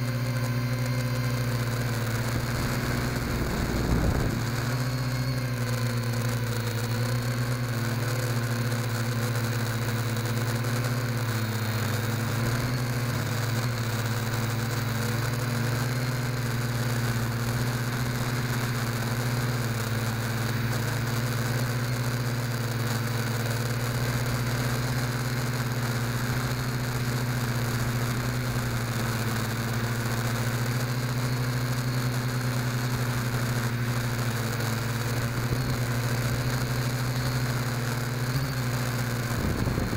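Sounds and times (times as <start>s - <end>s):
drone motors buzzing whine: 0.0s - 39.9s
constant hiss: 2.0s - 5.0s.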